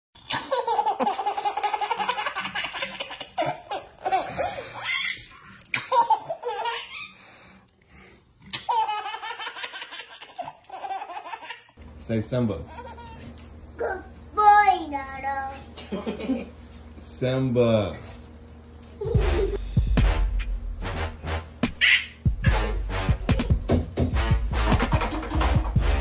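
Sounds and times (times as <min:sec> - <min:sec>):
small child giggling: 0:19.0 - 0:19.6.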